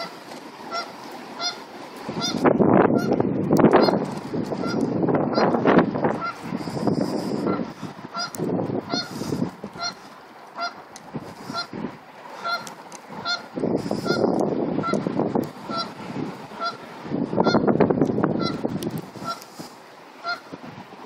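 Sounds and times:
canada goose honking: 0.0 - 3.2, 3.8 - 4.0, 4.6 - 5.6, 6.2 - 6.4, 7.4 - 10.0, 10.6 - 10.8, 11.4 - 11.8, 12.4 - 16.8, 17.4 - 17.7, 18.4 - 18.6, 19.2 - 19.4, 20.2 - 20.6.

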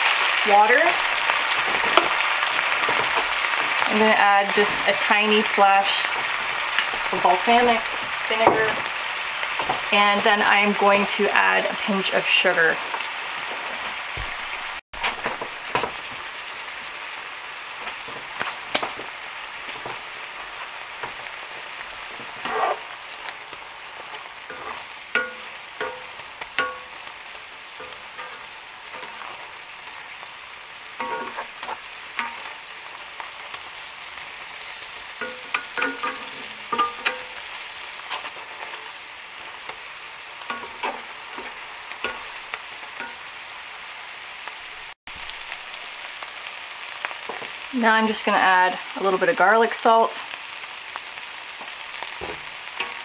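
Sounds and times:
onions sizzling in a skillet: 0.0 - 53.0
spatula scraping a pan: 17.8 - 30.2, 30.9 - 33.8, 34.5 - 43.2.

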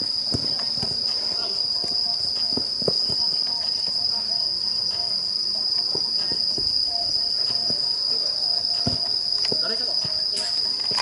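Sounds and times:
insects trilling: 0.0 - 11.0
soft thuds on artificial turf: 0.2 - 4.0, 5.9 - 7.9, 8.7 - 10.2.

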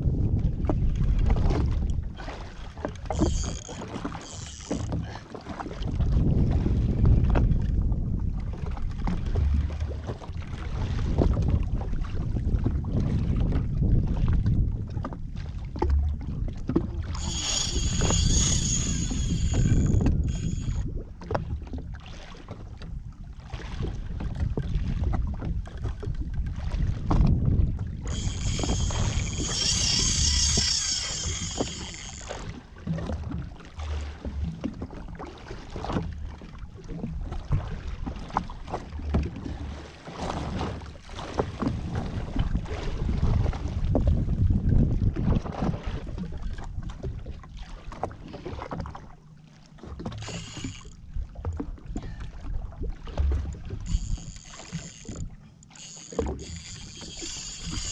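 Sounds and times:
wind buffeting microphone: 0.0 - 21.9, 22.9 - 33.5, 40.4 - 47.4
water slapping against hull: 0.0 - 57.9
high whirring: 3.1 - 5.0, 17.1 - 20.8, 28.1 - 32.5, 50.1 - 51.0, 53.8 - 57.9.

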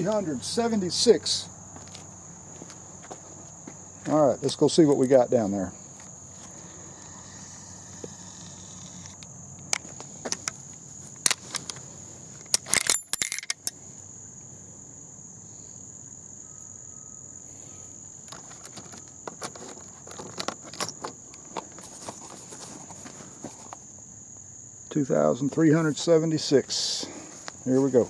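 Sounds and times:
insects buzzing: 0.0 - 28.0
metallic clicks of gear handled: 12.4 - 13.8.

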